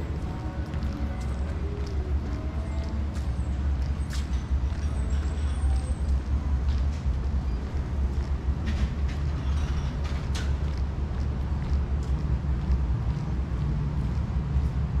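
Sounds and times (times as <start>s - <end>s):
low street rumble: 0.0s - 15.0s.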